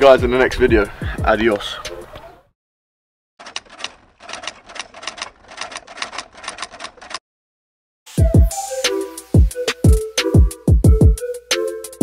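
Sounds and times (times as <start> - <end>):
keyboard key clacks: 3.4 - 7.2.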